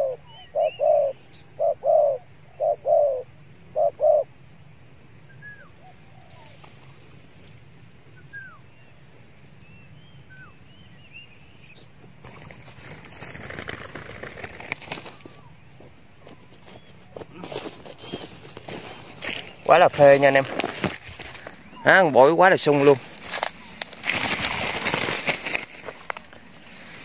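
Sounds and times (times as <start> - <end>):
dove cooing: 0.0 - 4.4, 5.3 - 6.9
small birds chirping: 0.0 - 4.4, 5.2 - 27.0
rustling in dry leaves: 12.2 - 27.0.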